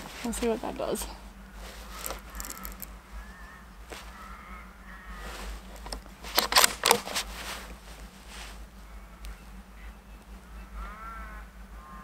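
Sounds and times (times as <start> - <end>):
crows cawing: 1.4 - 5.7, 8.8 - 12.0.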